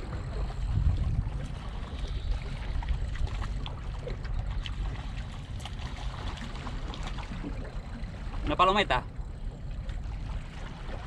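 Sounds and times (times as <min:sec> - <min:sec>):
water lapping against rocks: 0:00.0 - 0:08.5
wind buffeting microphone: 0:00.0 - 0:08.6
small water splashes: 0:00.0 - 0:11.0.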